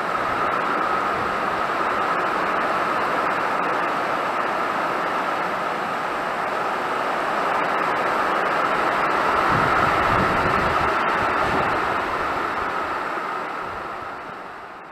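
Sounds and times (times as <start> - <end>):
gusting wind: 0.0 - 14.9
heavy rain on metal roof: 0.0 - 14.9
wind buffeting microphone: 9.0 - 12.9.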